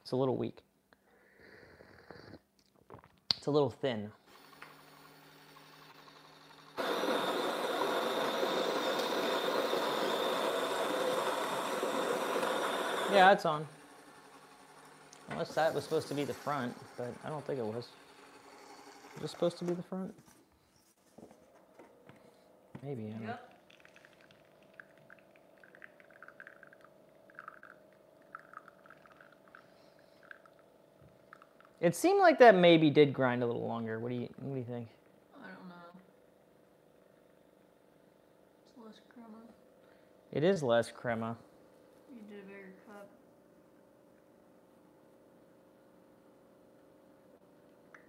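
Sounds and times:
coffee grinder grinding beans: 0:04.3 - 0:19.8, 0:23.5 - 0:31.8
coffee splashing into cup: 0:23.6 - 0:31.8.

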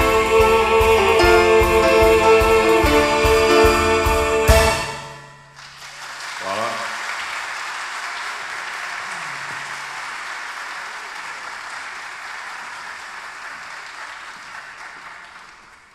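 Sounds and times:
audience applauding: 0:05.5 - 0:15.9.

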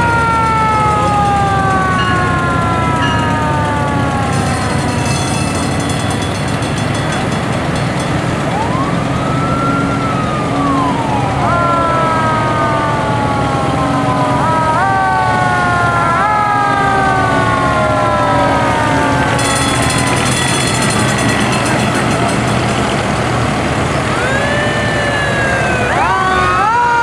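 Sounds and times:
fire engines rumbling: 0:00.0 - 0:27.0
fire truck siren wailing: 0:00.0 - 0:27.0.

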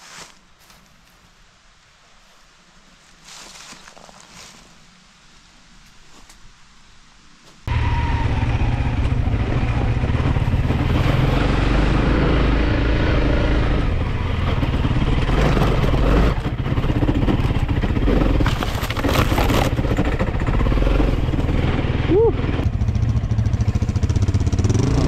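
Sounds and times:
motorcycle engine running: 0:07.7 - 0:25.0.

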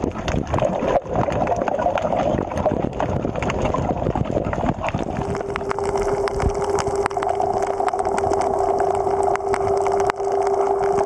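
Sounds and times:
sharp underwater clicks: 0:00.0 - 0:11.0
underwater boat engine hum: 0:00.0 - 0:11.0
higher engine tone: 0:05.1 - 0:11.0.

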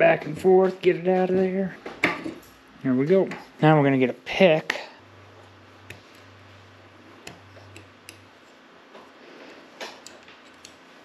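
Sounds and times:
metal pick clicking and scraping: 0:07.2 - 0:08.6, 0:09.5 - 0:10.9.

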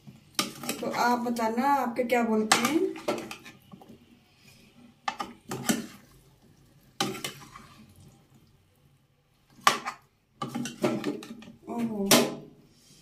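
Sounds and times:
metal spatula scraping a pan: 0:00.3 - 0:01.3, 0:02.4 - 0:06.2, 0:06.9 - 0:08.0, 0:09.6 - 0:11.5.

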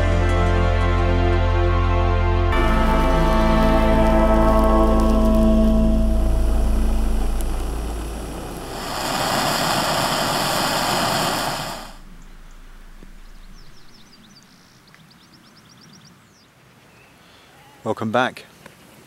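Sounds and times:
gas stove hissing: 0:08.0 - 0:12.0.

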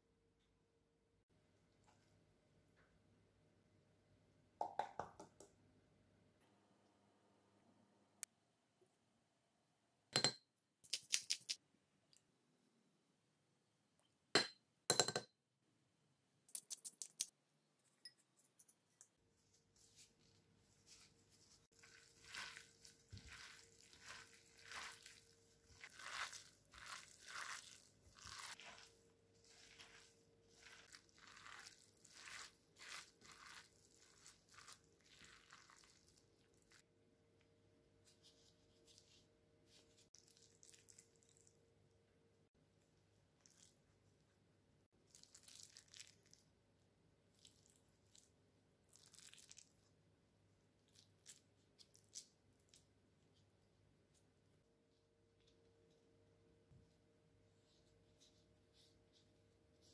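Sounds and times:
spoon clinking on glass bowl: 0:14.4 - 0:15.3
hand squishing meat filling: 0:19.3 - 0:36.9, 0:38.2 - 0:41.5, 0:44.9 - 0:46.6.

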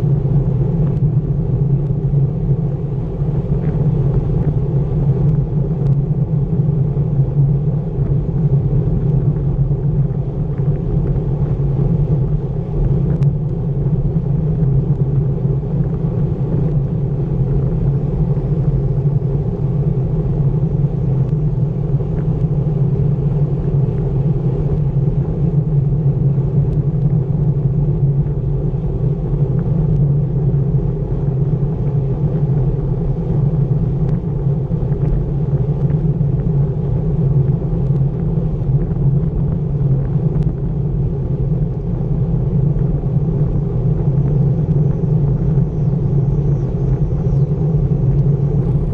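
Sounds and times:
wind rumble on microphone: 0:00.0 - 0:48.9
bicycle tyres rolling on asphalt: 0:00.2 - 0:48.9.

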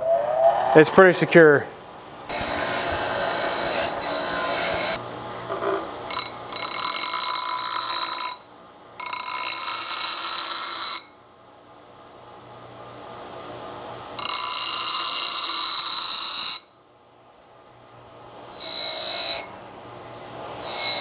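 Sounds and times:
grinder wheel grinding steel: 0:02.3 - 0:08.4, 0:20.4 - 0:21.0.

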